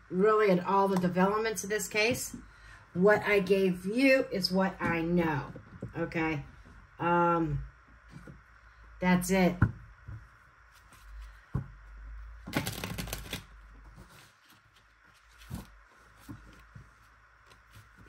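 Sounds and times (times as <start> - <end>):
cards being shuffled: 12.4 - 18.0.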